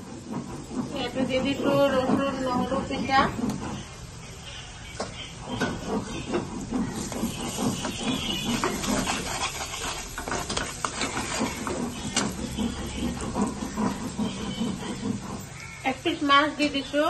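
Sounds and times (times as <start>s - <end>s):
metal spatula scraping pan: 5.5s - 15.9s
curry sizzling in a pan: 6.1s - 15.8s.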